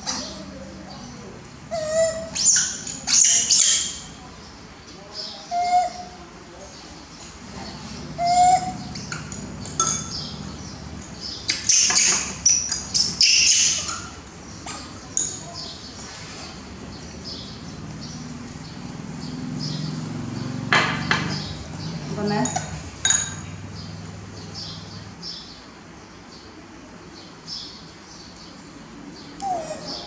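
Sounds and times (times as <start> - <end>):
baby monkey squeaking: 1.7 - 4.1, 11.5 - 14.2.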